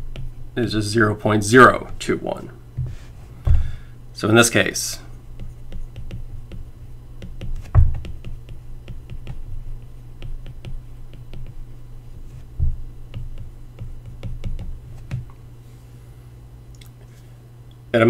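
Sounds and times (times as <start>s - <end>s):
steady low hum: 0.0s - 18.0s
low thumps: 2.7s - 3.8s, 12.5s - 13.3s.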